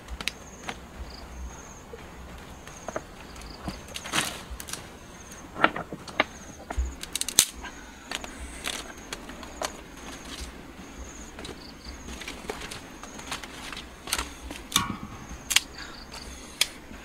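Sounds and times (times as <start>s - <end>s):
sharp clicks and knocks: 12.2s - 16.8s.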